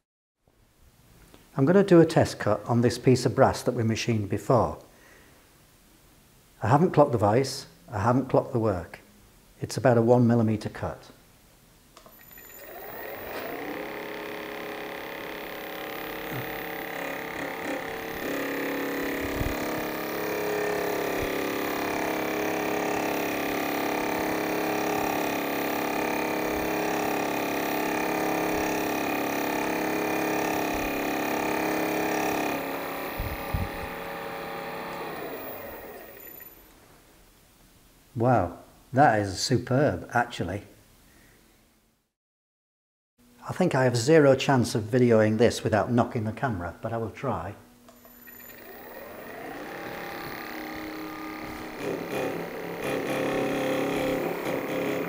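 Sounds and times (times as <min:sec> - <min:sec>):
electric milling motor whining: 0:12.2 - 0:36.6, 0:48.0 - 0:55.0.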